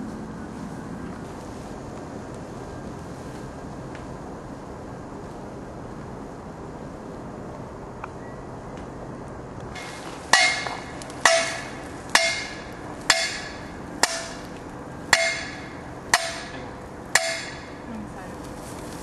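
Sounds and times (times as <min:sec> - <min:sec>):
sledgehammer clanging on metal post: 0:09.8 - 0:14.5, 0:15.1 - 0:17.8.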